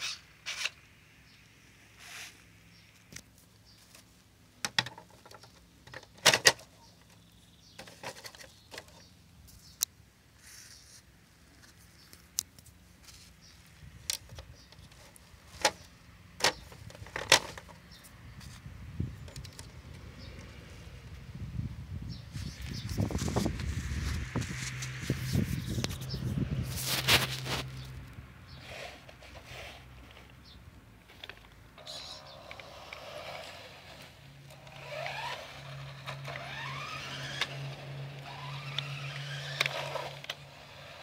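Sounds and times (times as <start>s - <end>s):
plastic clicks and knocks: 4.6s - 6.6s.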